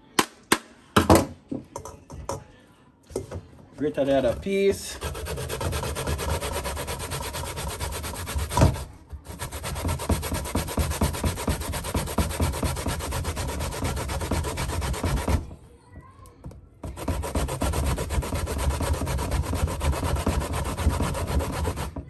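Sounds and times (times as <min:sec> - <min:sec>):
grating root on metal grater: 0:03.9 - 0:15.4, 0:16.8 - 0:22.0.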